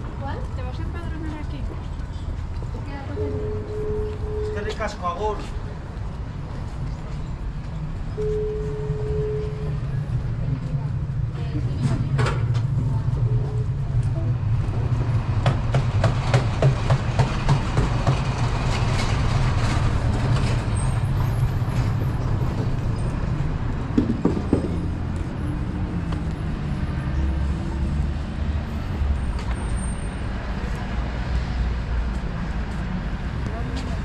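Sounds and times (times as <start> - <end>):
low rumble of traffic: 0.0 - 34.0.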